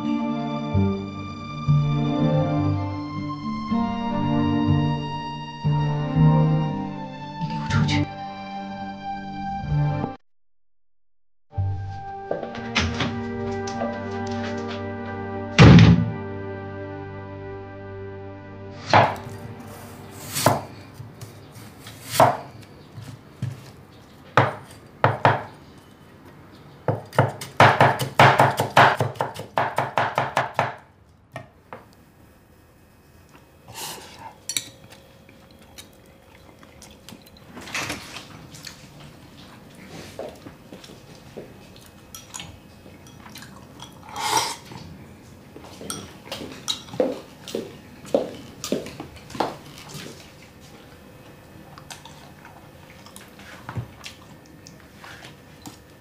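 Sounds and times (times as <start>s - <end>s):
rapid chopping strokes: 20.2s - 20.7s, 21.7s - 22.5s, 27.2s - 30.8s.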